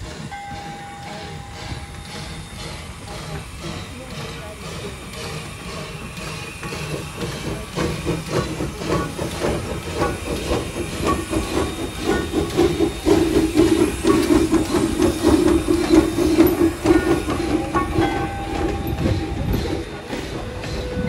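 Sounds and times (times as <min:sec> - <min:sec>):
steam hissing: 0:00.0 - 0:21.0
steam locomotive chuffing: 0:00.0 - 0:21.0.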